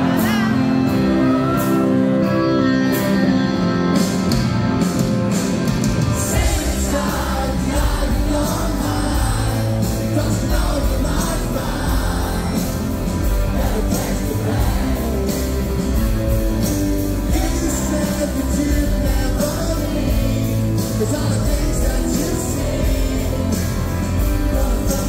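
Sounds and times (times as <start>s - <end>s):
live rock band playing: 0.0s - 25.0s
person singing: 17.2s - 25.0s.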